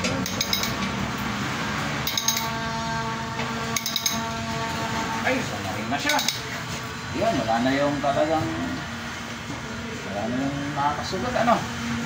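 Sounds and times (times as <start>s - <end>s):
sharp ratchet clicks: 0.1s - 0.9s, 2.0s - 2.5s, 3.8s - 4.2s.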